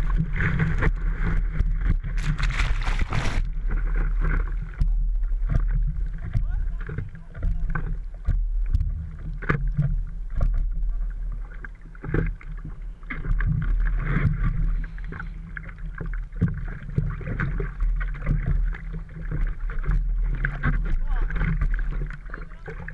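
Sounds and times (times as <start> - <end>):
low rumble: 0.0 - 9.2
water splashing against surfboard: 0.0 - 22.9.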